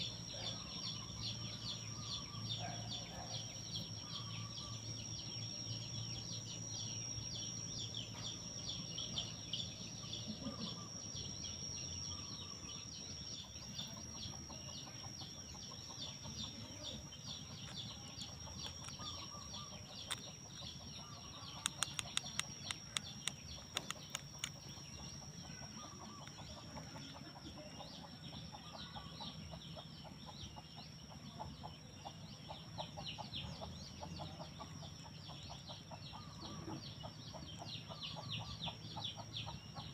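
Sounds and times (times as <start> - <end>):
insects droning and chirping: 0.0 - 39.9
sharp clicks: 18.5 - 19.3, 19.9 - 20.7, 21.4 - 24.8.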